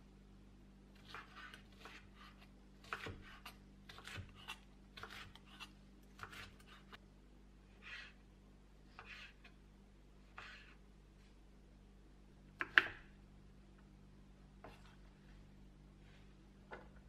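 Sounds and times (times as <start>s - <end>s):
knife chopping on wooden board: 1.0s - 7.0s, 12.6s - 13.0s.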